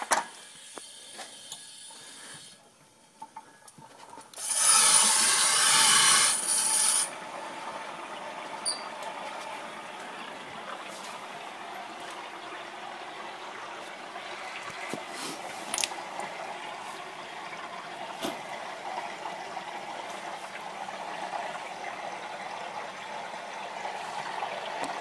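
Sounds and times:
water hissing: 0:00.3 - 0:02.6, 0:04.4 - 0:07.2
water rushing through valve: 0:03.9 - 0:25.0.

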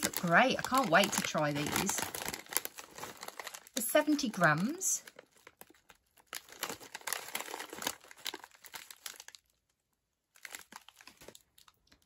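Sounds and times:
plastic crisp packet crinkling: 0:00.0 - 0:12.0.

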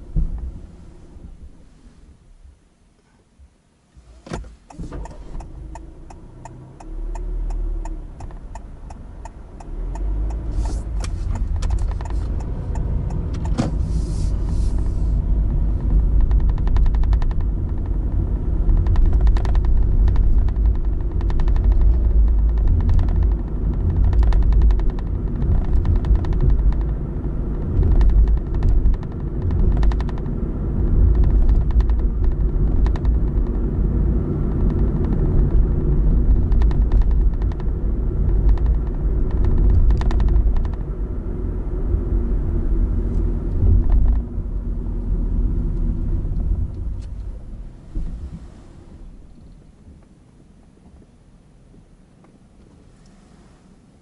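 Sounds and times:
car engine and tyre rumble: 0:00.0 - 0:54.0
regular ticks: 0:04.7 - 0:13.6, 0:14.5 - 0:30.4, 0:31.0 - 0:33.6, 0:34.5 - 0:41.0.

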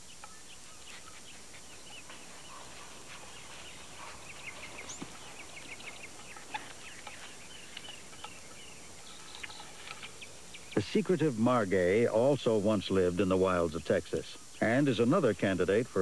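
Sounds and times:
coatis chirping: 0:00.0 - 0:11.4.

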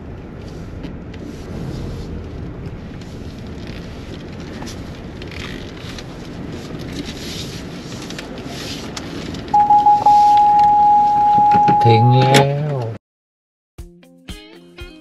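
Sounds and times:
tyres crackling on gravel: 0:00.0 - 0:10.4
car engine and tyres rumbling: 0:00.0 - 0:13.0.

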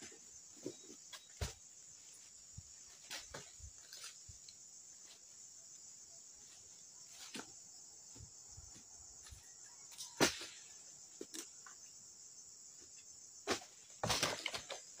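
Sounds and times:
high insect chorus: 0:00.0 - 0:15.0.

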